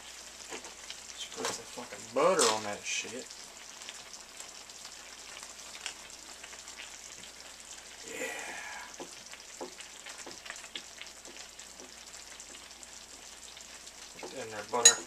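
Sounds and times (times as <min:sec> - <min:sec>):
pan simmering with pops: 0:00.0 - 0:15.0.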